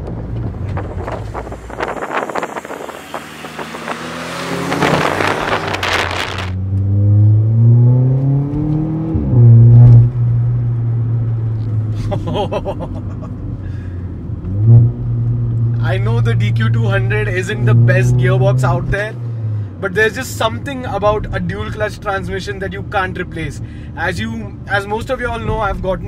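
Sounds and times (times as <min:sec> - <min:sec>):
gear upshift: 0:00.0 - 0:10.7
car engine accelerating: 0:00.0 - 0:26.0.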